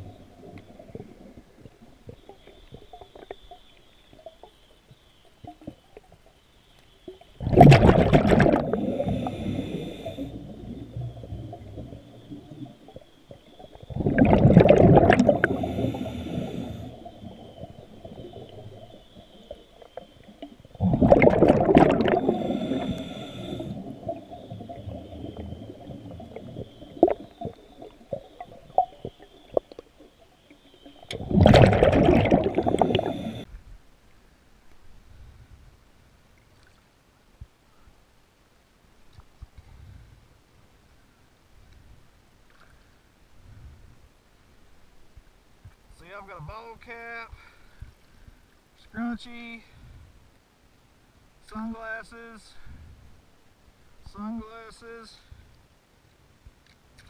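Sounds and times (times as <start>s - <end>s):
underwater bubbles gushing: 0.0s - 4.5s, 7.1s - 33.5s.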